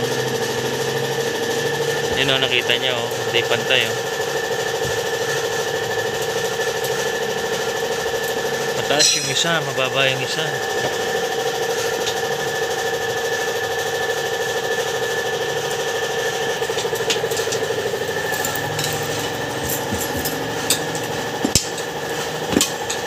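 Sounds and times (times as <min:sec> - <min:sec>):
motor humming: 0:00.0 - 0:23.0.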